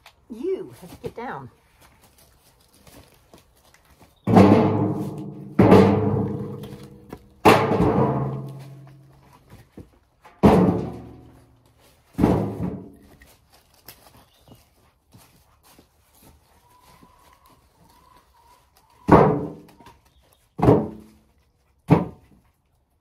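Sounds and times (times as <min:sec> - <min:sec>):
metal wheelbarrow tray ringing: 0:04.3 - 0:09.1, 0:10.3 - 0:11.4
wood thudding into wheelbarrow: 0:04.3 - 0:09.1, 0:09.8 - 0:11.4, 0:12.0 - 0:13.2, 0:19.1 - 0:19.7, 0:20.6 - 0:21.2, 0:21.9 - 0:22.4.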